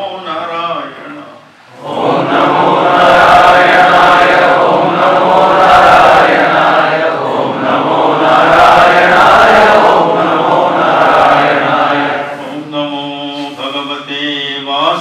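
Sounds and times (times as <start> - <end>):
voices chanting in unison: 1.7 - 12.6.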